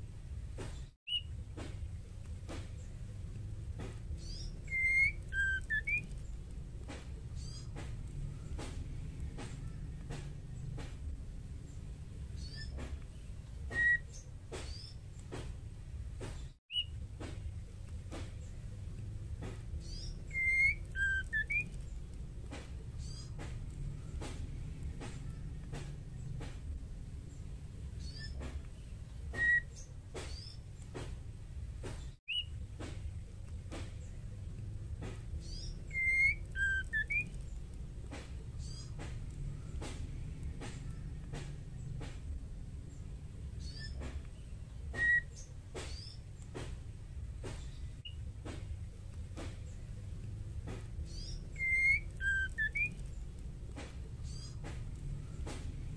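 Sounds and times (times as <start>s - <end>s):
low steady rumble: 0.0s - 55.9s
bird whistling: 1.1s - 1.3s, 4.2s - 6.4s, 7.4s - 8.8s, 13.6s - 15.0s, 16.7s - 17.0s, 19.8s - 22.1s, 23.0s - 26.4s, 29.3s - 30.6s, 32.3s - 32.6s, 35.4s - 37.7s, 38.6s - 39.9s, 43.6s - 44.1s, 44.9s - 46.2s, 51.0s - 53.3s.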